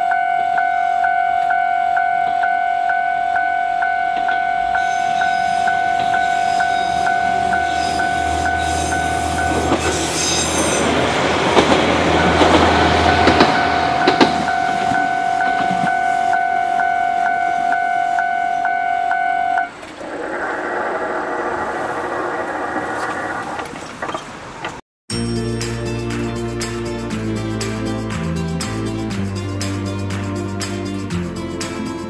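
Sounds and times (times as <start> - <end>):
level-crossing warning bell ringing: 0.0 - 19.8
train rumbling and clattering: 3.8 - 18.3, 19.6 - 24.8.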